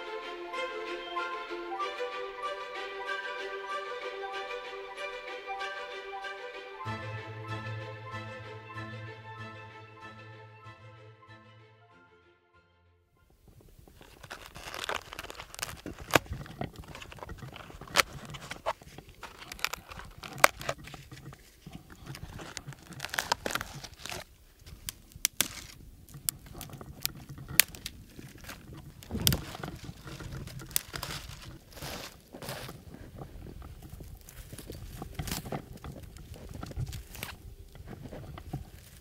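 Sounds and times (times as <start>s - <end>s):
twigs snapping: 13.9s - 32.8s, 33.7s - 39.0s
footsteps crunching through snow: 28.3s - 39.0s.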